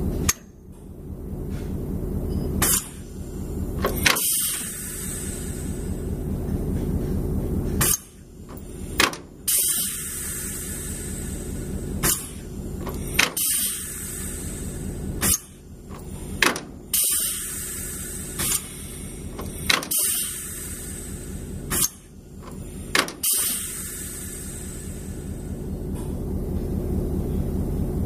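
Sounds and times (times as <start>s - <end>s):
low machinery hum: 0.0s - 28.0s
sharp mechanical clunks: 0.1s - 0.8s, 2.3s - 3.0s, 3.8s - 4.8s, 6.5s - 10.1s, 12.0s - 13.9s, 15.2s - 17.4s, 19.3s - 20.4s, 21.7s - 23.7s
hiss: 4.0s - 6.1s, 8.7s - 25.6s.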